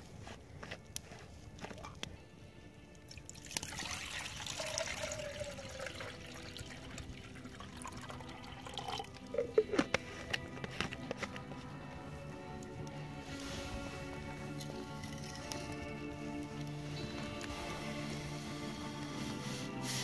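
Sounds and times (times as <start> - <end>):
soft background music: 0.0 - 20.0
water pouring and dripping: 3.1 - 9.9.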